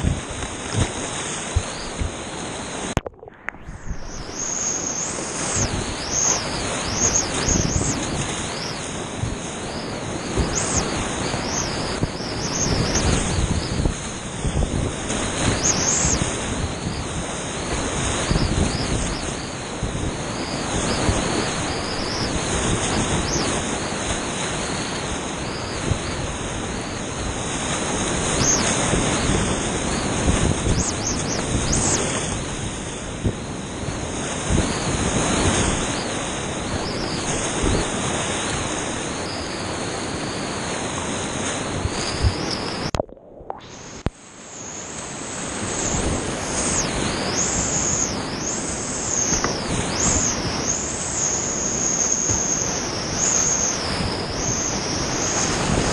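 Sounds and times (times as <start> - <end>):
water splashes: 40.8 - 44.4.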